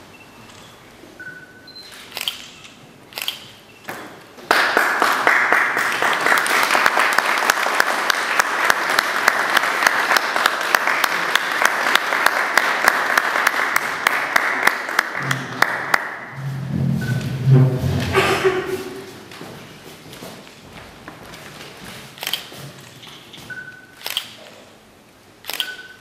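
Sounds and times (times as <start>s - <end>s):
audience applause: 4.5s - 16.4s.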